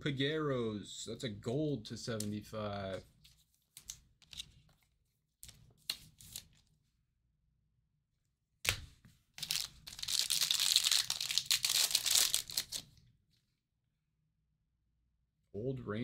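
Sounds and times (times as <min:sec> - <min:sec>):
wrapper tearing and crinkling: 0:09.4 - 0:12.8.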